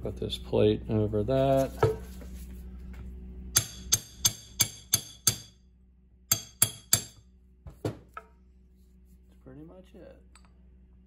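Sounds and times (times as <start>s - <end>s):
hammer tapping steel plate: 3.6s - 5.6s, 6.3s - 7.2s.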